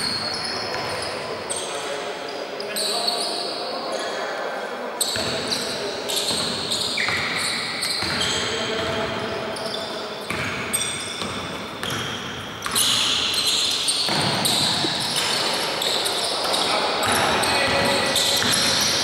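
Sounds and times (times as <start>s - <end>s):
sneakers squeaking: 0.0s - 4.2s, 5.0s - 19.0s.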